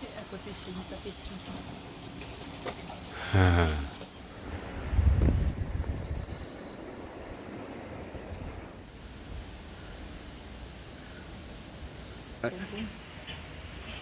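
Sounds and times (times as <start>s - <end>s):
wind rumble on microphone: 4.4s - 8.7s.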